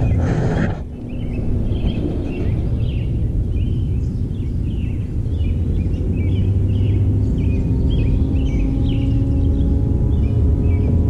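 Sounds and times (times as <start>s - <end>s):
distant plane engine drone: 0.0s - 11.0s
low rumble: 0.0s - 11.0s
small birds chirping: 0.0s - 11.0s.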